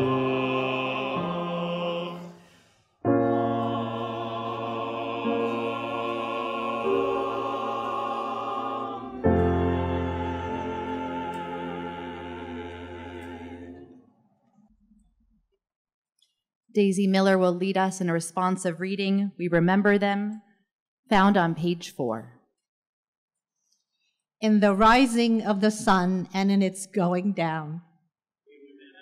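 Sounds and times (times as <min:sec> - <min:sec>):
piano accompaniment: 0:00.0 - 0:02.4, 0:03.0 - 0:13.4
choir singing: 0:00.0 - 0:14.2.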